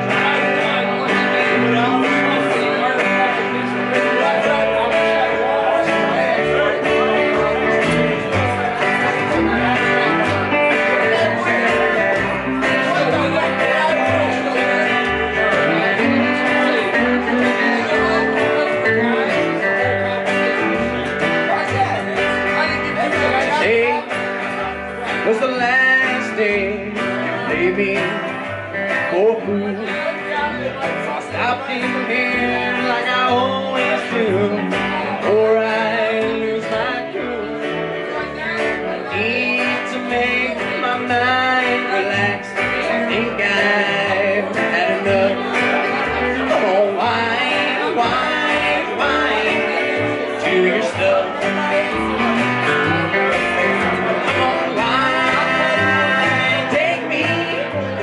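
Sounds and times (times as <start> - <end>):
acoustic guitar: 0.0 - 58.0
electric guitar: 0.0 - 58.0
upright double bass: 0.0 - 58.0.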